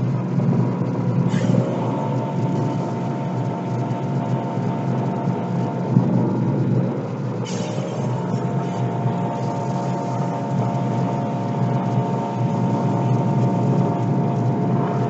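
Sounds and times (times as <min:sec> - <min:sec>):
muffled air compressor running: 0:00.0 - 0:15.0
compressed air hissing: 0:01.2 - 0:03.3, 0:07.4 - 0:13.6.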